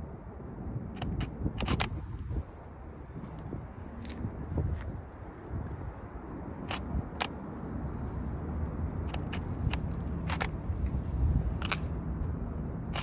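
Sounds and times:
steady low rumble: 0:00.0 - 0:13.0
camera shutter clicks: 0:01.0 - 0:02.0, 0:06.7 - 0:07.3, 0:09.0 - 0:10.6.

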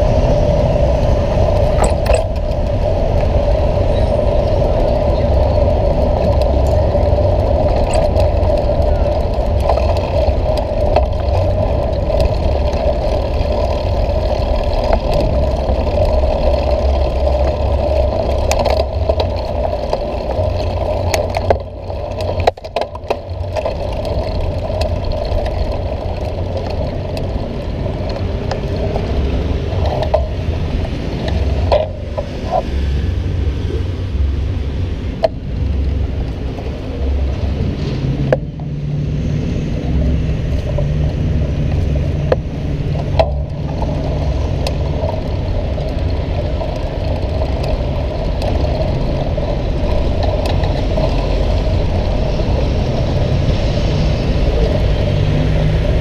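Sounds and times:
bicycle rattling over stone paving: 0:00.0 - 0:56.0
city traffic: 0:00.0 - 0:56.0
wind rumble on microphone: 0:00.0 - 0:56.0.

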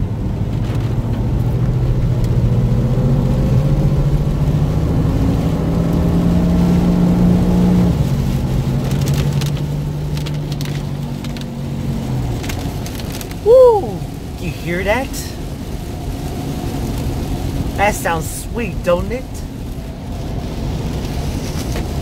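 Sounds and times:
car engine accelerating hard: 0:00.0 - 0:13.4.

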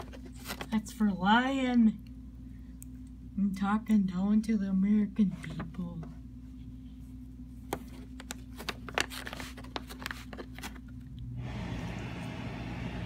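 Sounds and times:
paper envelope crinkling: 0:07.8 - 0:11.0.

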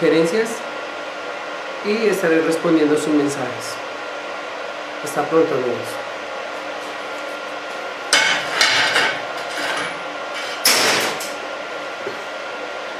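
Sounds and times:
metal clanks and scrapes: 0:08.1 - 0:11.4.

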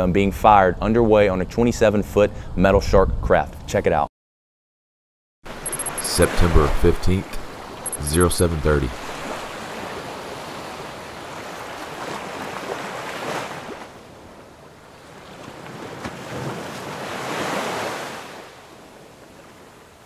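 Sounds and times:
wind: 0:00.0 - 0:04.1, 0:05.4 - 0:20.0
sea waves: 0:05.5 - 0:20.0.

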